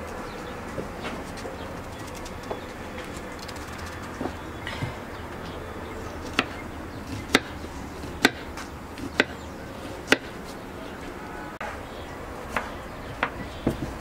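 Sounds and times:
knife chopping on wooden board: 6.3 - 9.4, 10.0 - 10.4.

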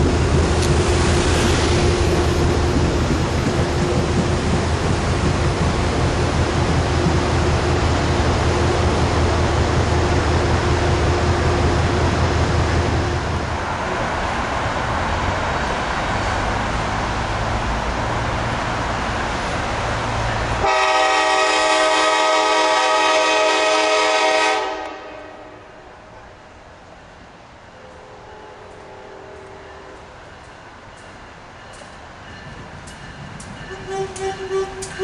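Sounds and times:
electric train rumbling on rails: 0.0 - 35.0
train horn: 20.6 - 25.8, 27.9 - 30.1, 33.6 - 35.0.

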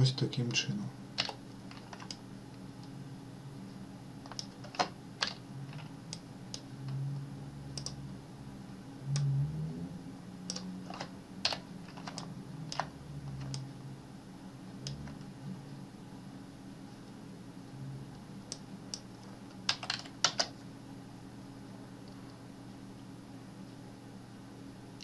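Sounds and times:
steady low hum: 0.0 - 25.0
keyboard and mouse clicking: 1.2 - 2.2, 4.2 - 7.0, 7.7 - 8.0, 10.5 - 13.7, 19.7 - 20.5.

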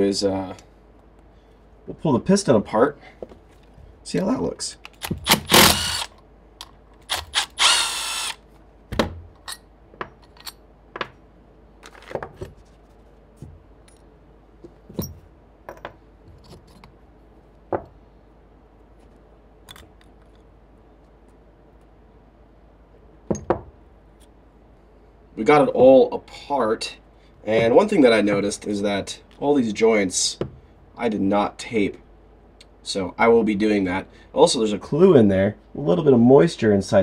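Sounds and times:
power driver burst: 5.0 - 6.1.

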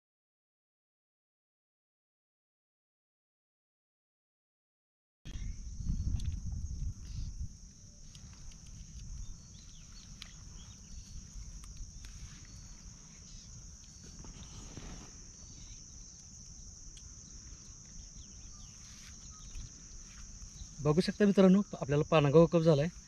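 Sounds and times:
wind rumble on microphone: 5.3 - 15.7
insect chirring: 5.3 - 23.0.

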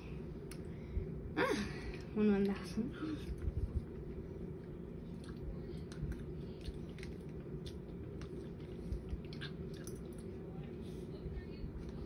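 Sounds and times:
low background hum: 0.0 - 12.0
wet chewing and mouth smacks: 3.3 - 10.4.

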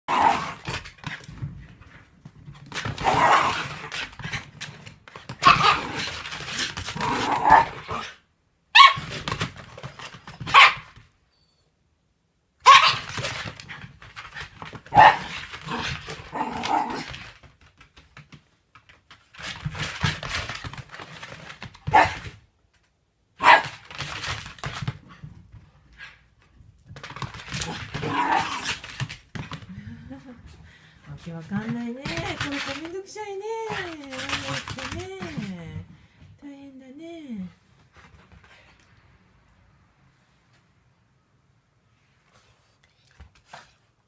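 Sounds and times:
dog barking: 8.8 - 9.0, 10.5 - 10.9, 12.6 - 13.0, 14.9 - 15.3, 23.4 - 23.8.

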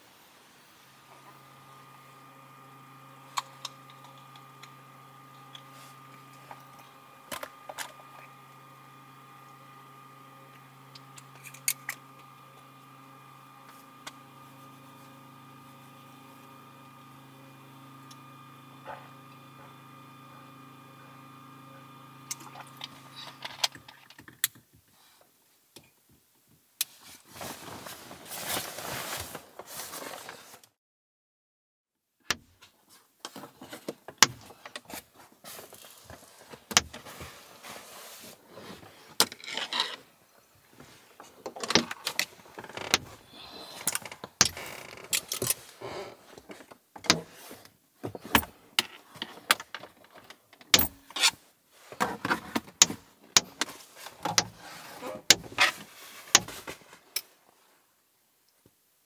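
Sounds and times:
rustling of shades: 26.9 - 30.8, 34.8 - 40.1, 53.6 - 57.8.

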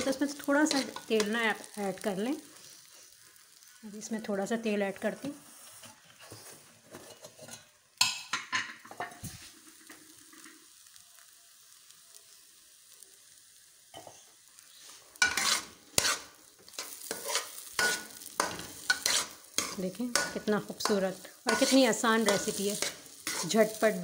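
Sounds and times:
spatula scraping steel pan: 15.2 - 20.4, 21.5 - 23.6.

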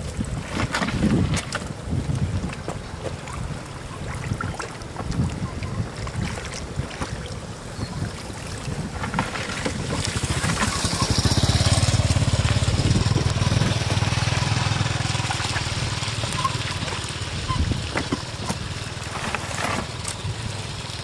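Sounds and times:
small engine running: 9.7 - 21.0.

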